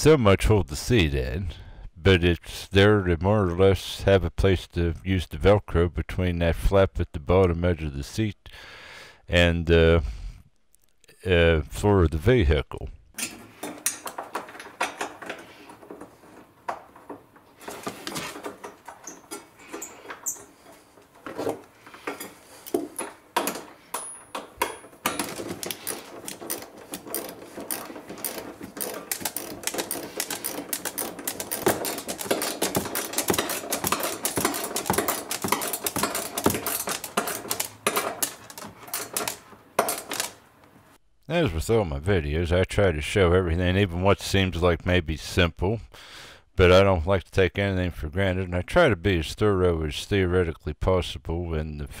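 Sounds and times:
metal parts knocking: 0:13.2 - 0:40.4
socket ratchet clicking: 0:22.2 - 0:40.4.

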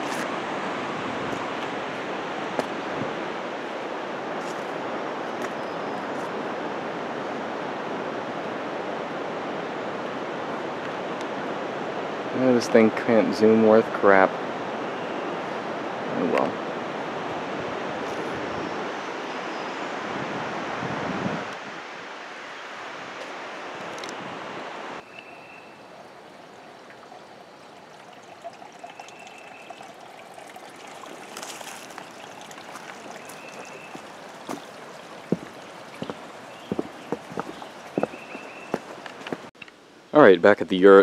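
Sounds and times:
creek trickling over rocks: 0:00.0 - 0:06.7, 0:25.3 - 0:39.5.

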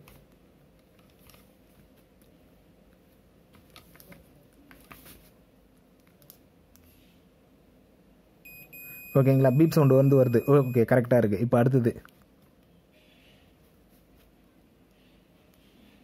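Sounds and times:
multimeter continuity beep: 0:08.5 - 0:11.1.

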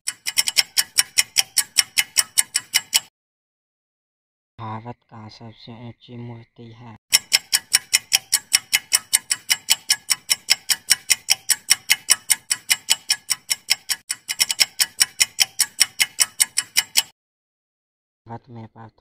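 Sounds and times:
quick clock ticks: 0:00.0 - 0:03.1, 0:07.1 - 0:17.2.

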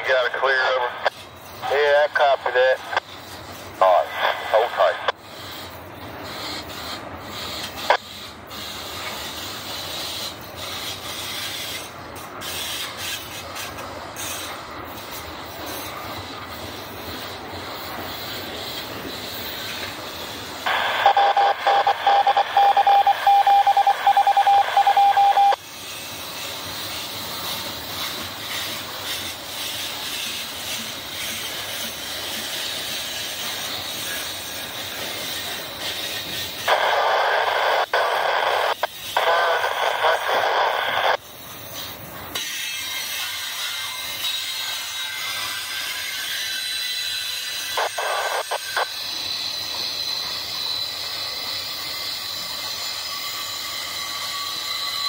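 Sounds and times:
radio-like sound with steady tone: 0:00.0 - 0:03.2, 0:03.8 - 0:05.2, 0:20.6 - 0:25.6, 0:36.7 - 0:41.2, 0:47.7 - 0:49.0
freight train rumbling and clattering: 0:00.0 - 0:20.8, 0:25.6 - 0:37.2, 0:41.2 - 0:55.0.

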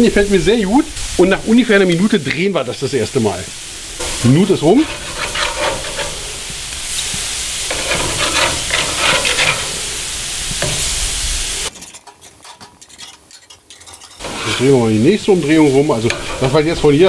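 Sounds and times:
meat sizzling on a grill: 0:00.0 - 0:12.6, 0:13.2 - 0:17.0
metal tongs turning meat: 0:03.6 - 0:17.0.

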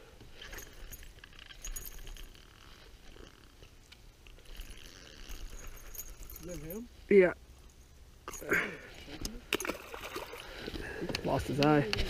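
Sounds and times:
handling clicks and rustles: 0:00.2 - 0:06.9.

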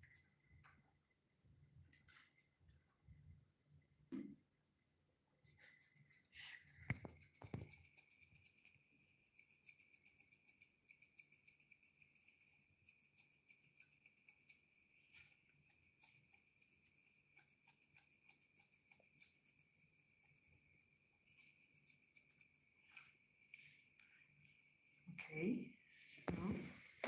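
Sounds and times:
scissors snipping hair: 0:05.4 - 0:20.5, 0:21.3 - 0:22.7.

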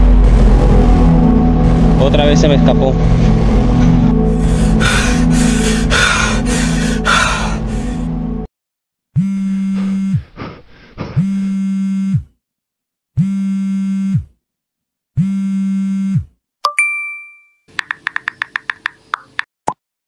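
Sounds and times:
phone vibrating: 0:09.2 - 0:10.4, 0:11.1 - 0:12.4, 0:13.2 - 0:14.4, 0:15.2 - 0:16.4
notification ding: 0:16.6 - 0:17.6.

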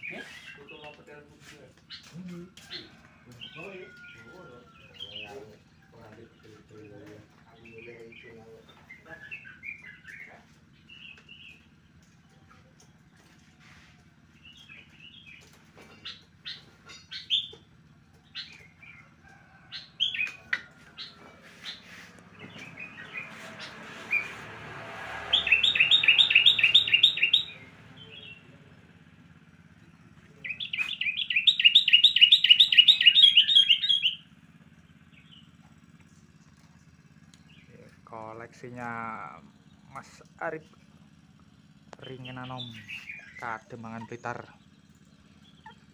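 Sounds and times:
songbirds chirping: 0:00.0 - 0:45.9
fast bird trills: 0:14.4 - 0:24.4, 0:25.2 - 0:28.6, 0:30.0 - 0:36.0, 0:41.5 - 0:45.9.

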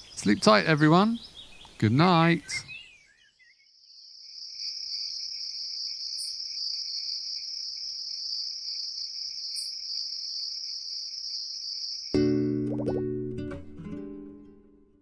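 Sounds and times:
crickets chirping: 0:02.7 - 0:12.2.

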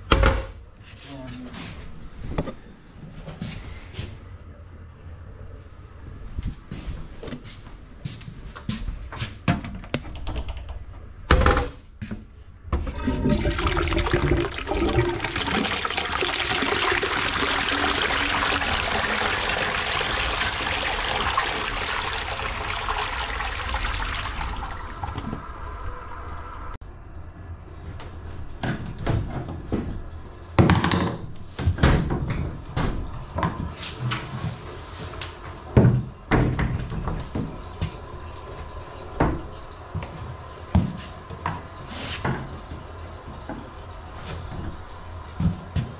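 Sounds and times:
toilet flushing: 0:12.8 - 0:26.8, 0:36.4 - 0:45.9.

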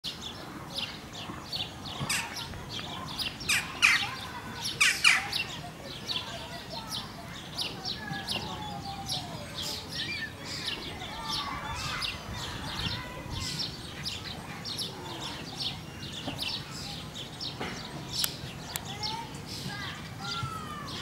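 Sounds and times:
small birds chirping: 0:00.1 - 0:21.0.

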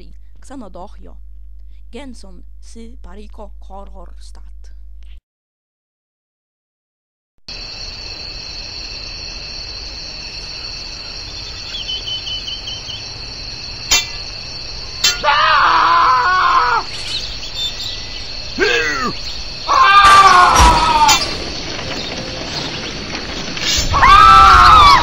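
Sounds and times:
crickets chirring: 0:07.5 - 0:25.0
bird chirps: 0:11.0 - 0:14.8, 0:16.9 - 0:19.6.

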